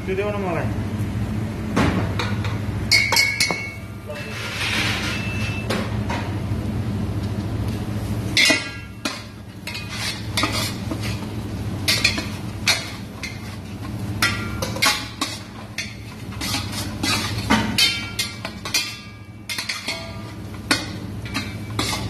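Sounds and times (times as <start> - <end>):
steady low hum: 0.0 - 22.0
metal spoon scraping a pot: 9.0 - 11.3, 14.6 - 22.0.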